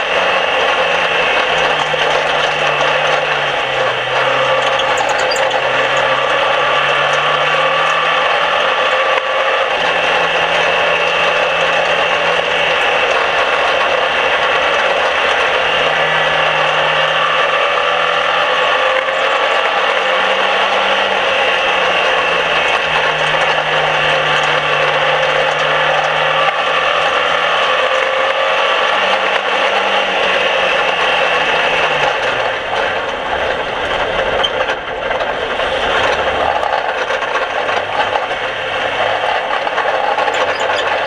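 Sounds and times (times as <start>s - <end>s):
race car engine running hard: 0.0s - 41.0s.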